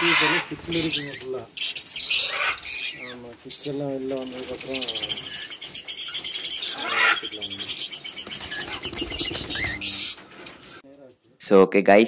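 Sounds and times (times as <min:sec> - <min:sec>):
sharp bird call: 0:00.0 - 0:03.1
cockatiels chirping and chattering: 0:00.0 - 0:11.3.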